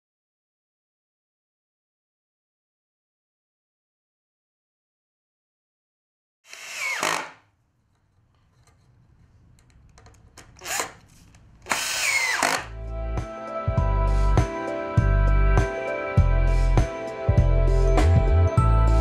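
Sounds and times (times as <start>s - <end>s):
cordless drill into wood: 6.5s - 7.4s, 10.6s - 12.7s
music with pulsing bass: 12.7s - 19.0s.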